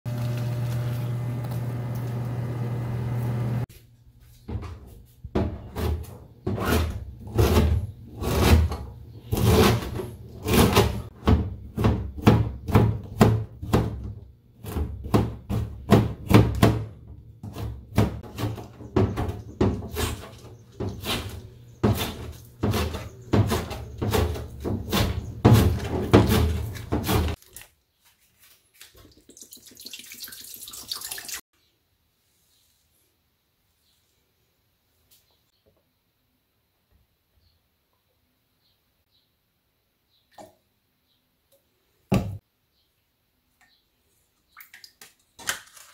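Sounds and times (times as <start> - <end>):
knife chopping on cutting board: 20.8 - 27.4
water boiling: 28.8 - 31.4.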